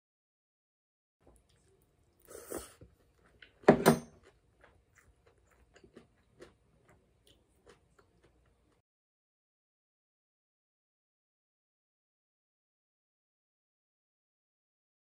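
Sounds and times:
chewing with mouth clicks: 1.2s - 3.6s, 4.2s - 8.8s.

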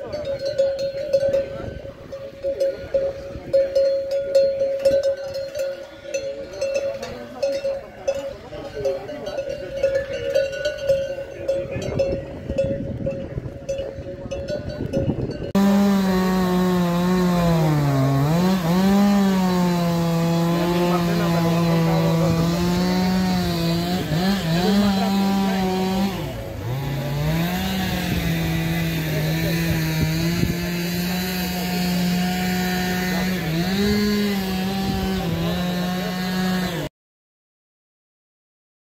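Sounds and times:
livestock bells clanking: 0.0s - 35.2s
small engine running at high revs: 15.4s - 36.9s.

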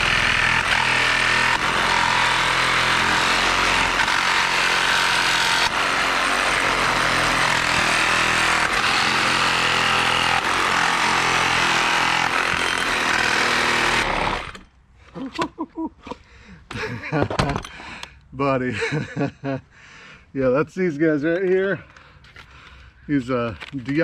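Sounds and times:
reciprocating saw cutting wood: 0.0s - 14.7s.

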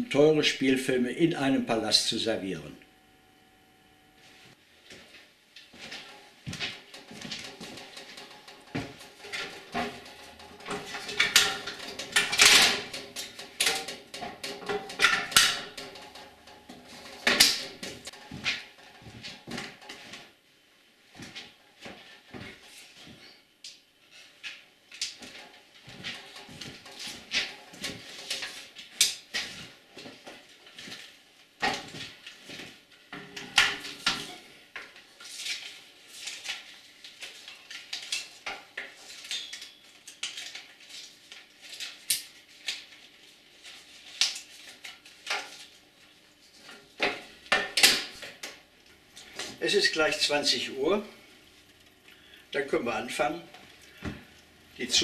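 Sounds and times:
metallic clicks and clatter: 5.9s - 20.2s, 24.9s - 31.0s.

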